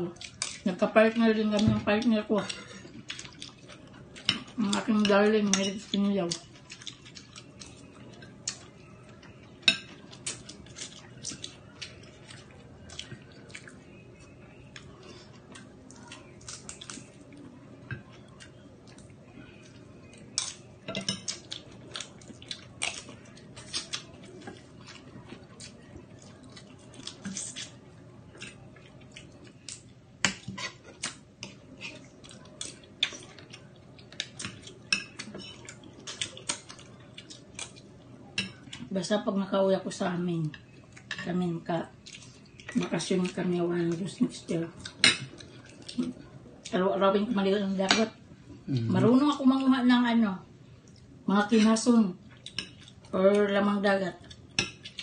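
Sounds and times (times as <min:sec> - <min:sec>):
cutlery clinking against dishes: 0:20.4 - 0:21.4.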